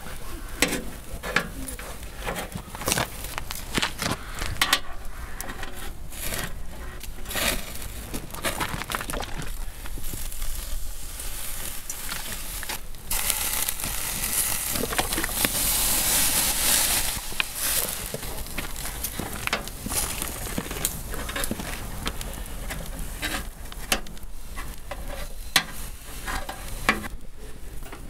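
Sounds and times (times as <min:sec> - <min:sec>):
meat sizzling on a grill: 0:10.0 - 0:27.1.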